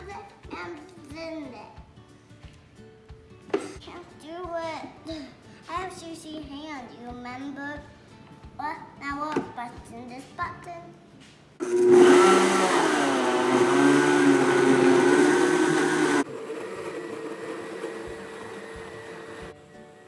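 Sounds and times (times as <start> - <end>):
blender running: 11.6 - 19.6.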